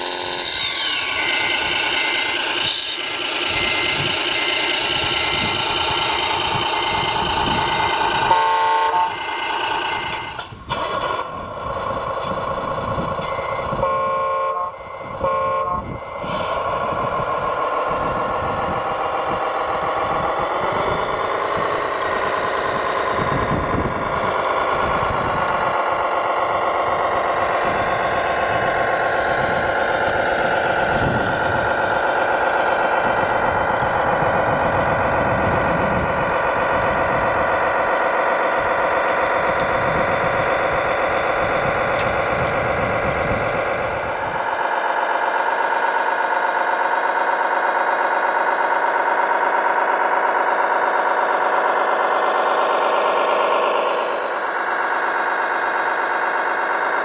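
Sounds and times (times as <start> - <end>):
simulated diesel engine revving: 0.0 - 57.0
horn toots: 8.3 - 9.3, 13.8 - 16.0.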